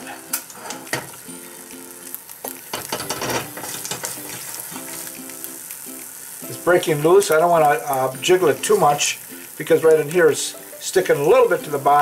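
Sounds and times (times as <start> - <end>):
egg sizzling in a pan: 0.0 - 12.0.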